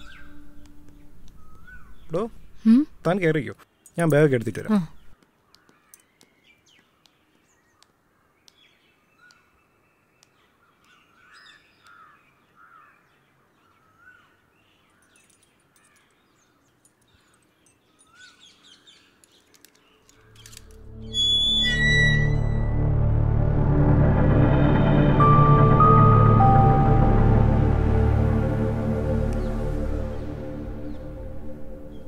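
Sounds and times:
birds calling: 0.0s - 2.6s, 3.6s - 22.7s
crows cawing: 11.2s - 13.1s
low rumble: 20.7s - 32.0s.

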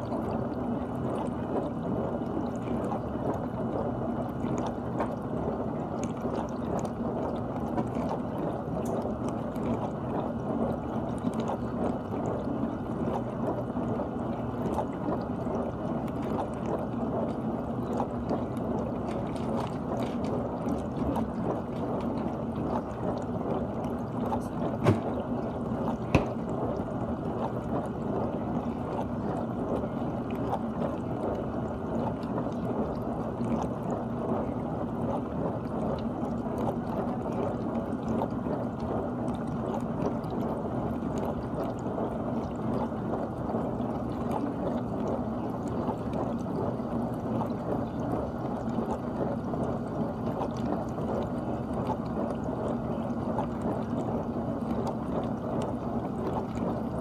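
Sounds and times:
dishwasher water spraying: 24.8s - 25.1s.

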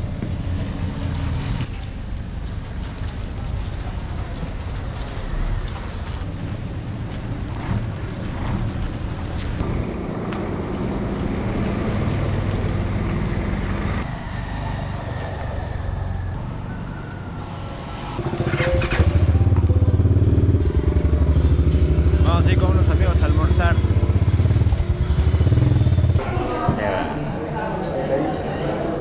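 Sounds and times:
traffic engines running: 0.0s - 26.6s
loud engine passing close: 9.6s - 16.6s, 17.4s - 26.2s.

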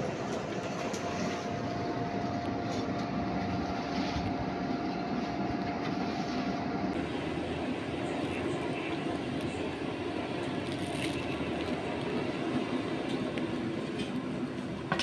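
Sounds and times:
faint steady whine: 0.0s - 15.0s.

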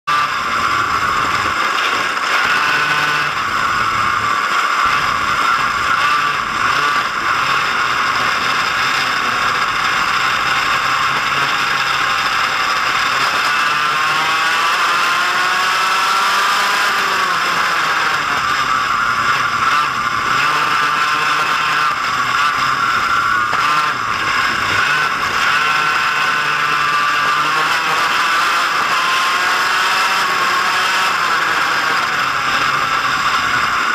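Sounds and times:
go-kart engine racing: 0.0s - 33.9s.

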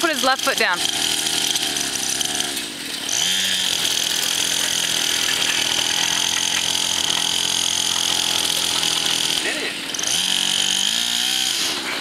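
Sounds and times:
small dirt bike engine revving: 0.0s - 12.0s.

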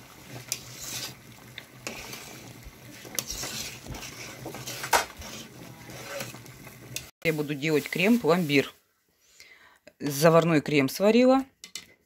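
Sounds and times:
liquid swishing: 0.0s - 6.8s
spoon scraping and knocking pot: 1.8s - 7.1s.

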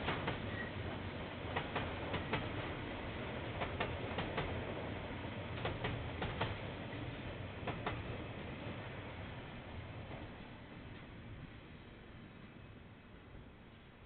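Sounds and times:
train wheels clicking over rail joints: 0.0s - 4.8s, 5.5s - 8.5s
low train rumble: 0.0s - 14.0s.

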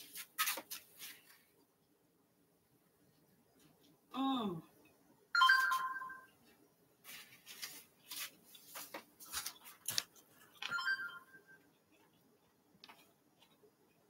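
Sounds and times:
short chime-like tones: 5.4s - 6.3s, 10.7s - 11.6s.

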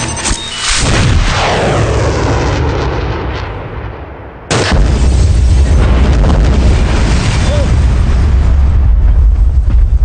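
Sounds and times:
missile whoosh: 0.5s - 3.9s
loud explosion rumbling: 0.6s - 10.0s.

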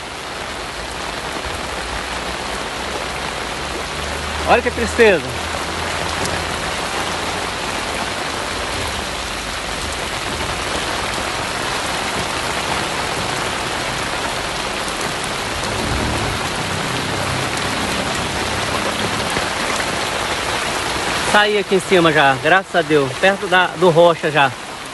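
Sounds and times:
heavy rain on standing water: 0.0s - 24.9s.

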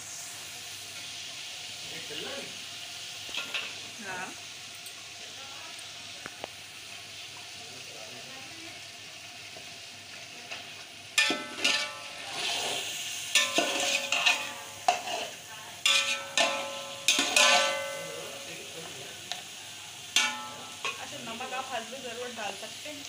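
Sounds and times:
oil sizzling: 0.0s - 23.0s
sharp clanks with ringing pot: 11.2s - 12.3s, 13.3s - 18.8s, 20.1s - 21.2s
metal spoon scraping pot: 11.2s - 18.2s.

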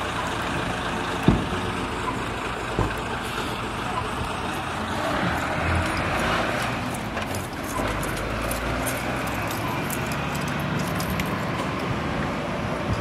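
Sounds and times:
street noise: 0.0s - 13.0s
truck engine rumble: 0.0s - 13.0s.

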